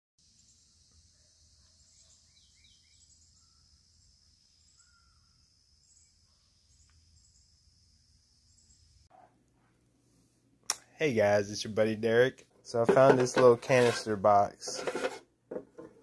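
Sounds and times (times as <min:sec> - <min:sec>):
insect chorus chirping: 0:00.2 - 0:09.1
faint bird chirps: 0:00.3 - 0:09.3.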